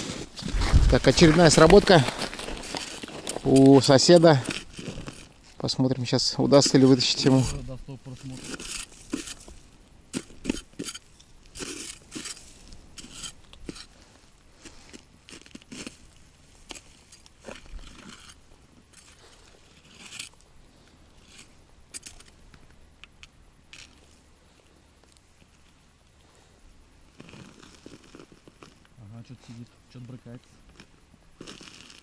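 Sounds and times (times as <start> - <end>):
scrapes and crunches: 0.0 - 20.4, 27.1 - 28.9, 30.6 - 32.0.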